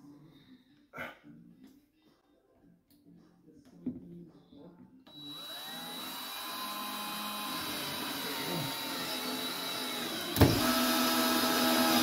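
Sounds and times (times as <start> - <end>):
cordless drill motor hum: 5.1 - 12.0.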